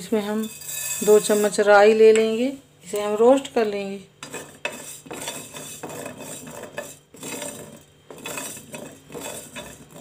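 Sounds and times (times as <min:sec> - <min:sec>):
spoon scraping a pan: 0:00.2 - 0:01.7, 0:04.2 - 0:10.0.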